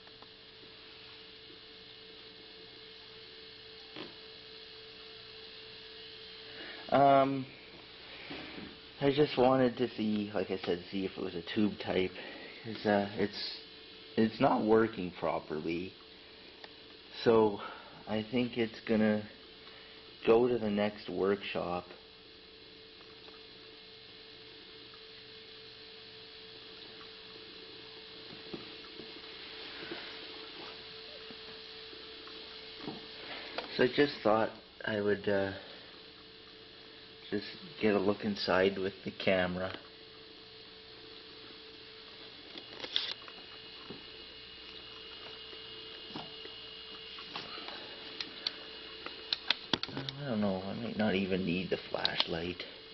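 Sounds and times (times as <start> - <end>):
faint steady hum: 0.0 - 52.9
hiss: 6.4 - 8.9.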